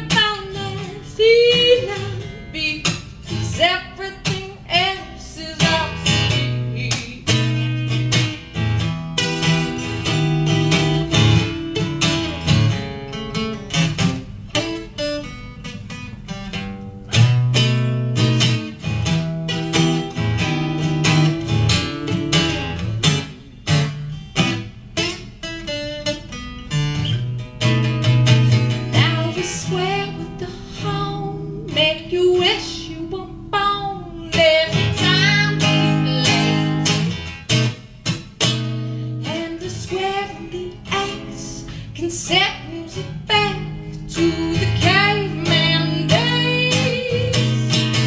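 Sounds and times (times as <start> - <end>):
woman singing: 0.0 - 8.3, 28.8 - 37.2, 39.0 - 48.0
acoustic guitar strumming: 0.0 - 48.0.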